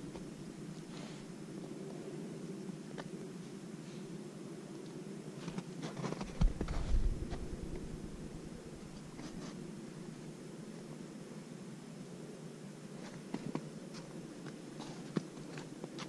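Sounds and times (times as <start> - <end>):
steady muffled hum: 0.0 - 16.0
scraping and crunching in snow: 5.5 - 7.9.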